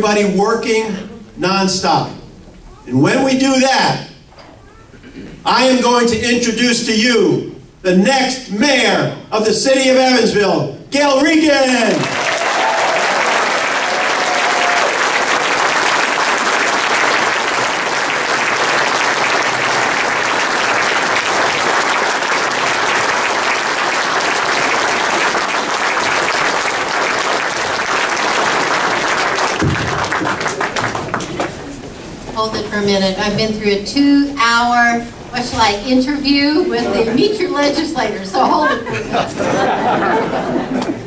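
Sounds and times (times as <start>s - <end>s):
audience applauding: 11.8s - 31.8s.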